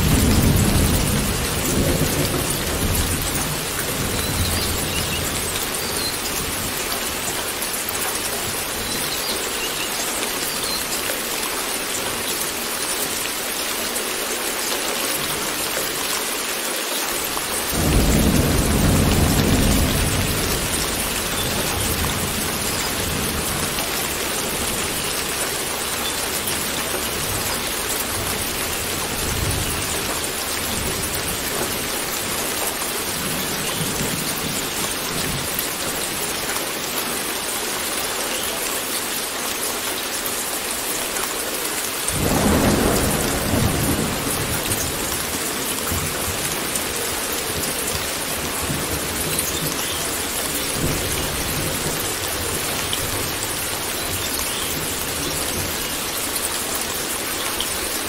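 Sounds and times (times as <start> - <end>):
heavy rain hissing: 0.0 - 58.0
loud thunderclap: 17.8 - 23.5, 42.2 - 45.1
low thunder rumbling: 17.8 - 24.8, 42.2 - 46.7.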